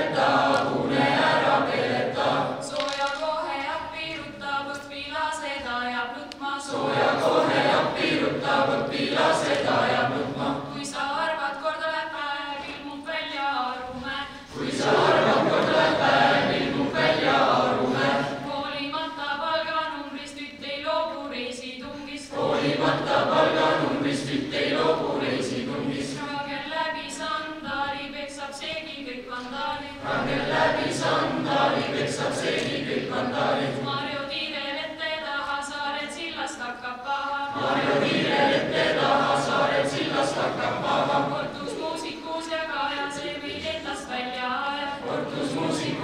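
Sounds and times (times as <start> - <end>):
teenagers singing unaccompanied: 0.0 - 46.0.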